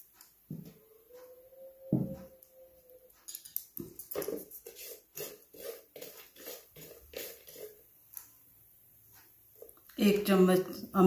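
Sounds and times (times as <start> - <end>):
wooden spatula scraping a pan: 4.2 - 7.8.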